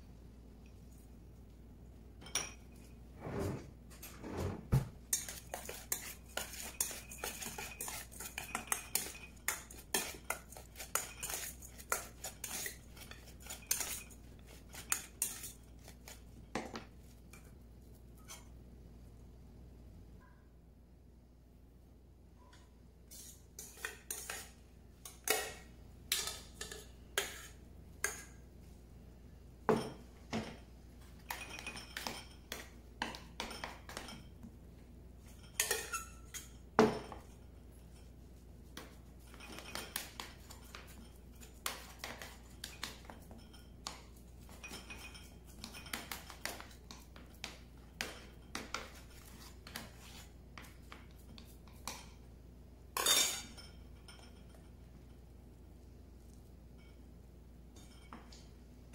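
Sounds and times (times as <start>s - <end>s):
metal spoon scraping bowl: 5.1s - 16.2s, 23.1s - 28.2s.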